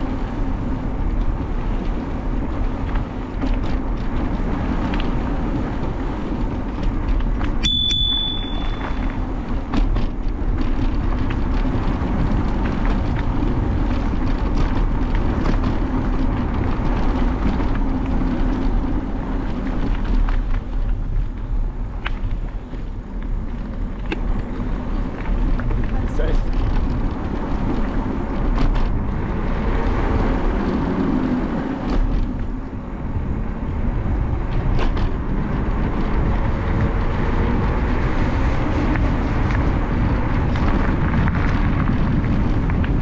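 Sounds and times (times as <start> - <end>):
bike tyre rumble: 0.0 - 43.0
wind rush on microphone: 0.0 - 43.0
short high ping: 7.6 - 9.1.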